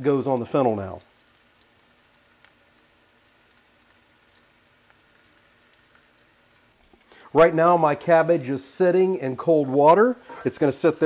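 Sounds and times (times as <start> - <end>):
vegetables sizzling in frying pan: 1.0 - 7.4, 9.6 - 11.0.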